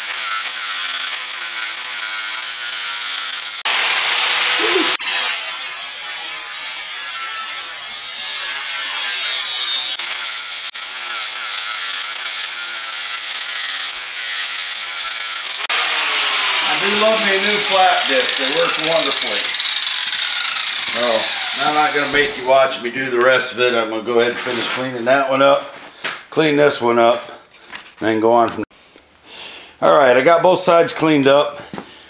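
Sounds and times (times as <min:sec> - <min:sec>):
angle grinder grinding steel: 0:00.0 - 0:25.0.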